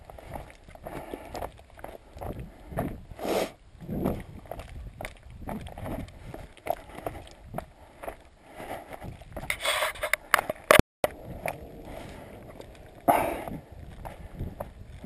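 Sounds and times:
footsteps on rocky trail: 0:00.0 - 0:15.0.

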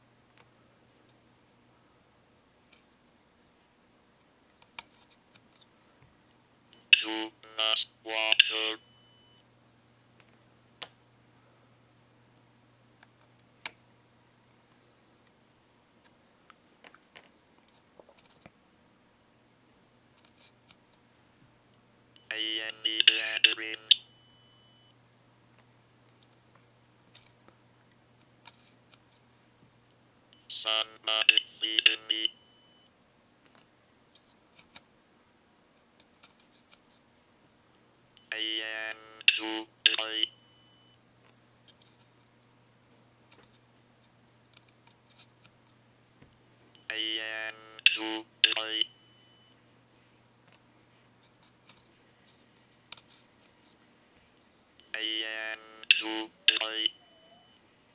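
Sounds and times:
robotic synthesized voice: 0:55.0 - 0:57.3.

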